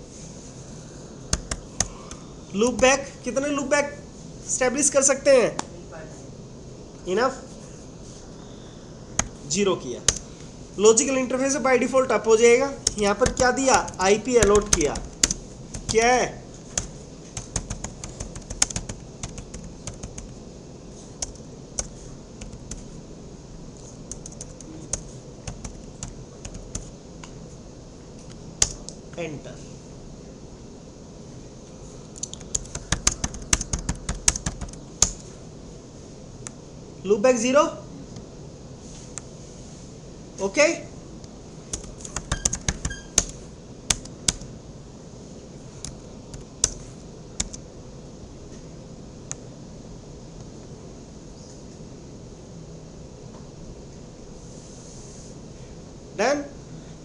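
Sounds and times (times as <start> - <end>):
faint steady hiss: 0.0 - 57.0
computer keyboard clicking: 1.3 - 2.2, 12.8 - 16.0, 16.7 - 20.4, 21.2 - 22.9, 24.1 - 26.9, 28.6 - 28.9, 32.2 - 35.2, 41.7 - 44.5, 45.8 - 46.8, 47.4 - 47.6.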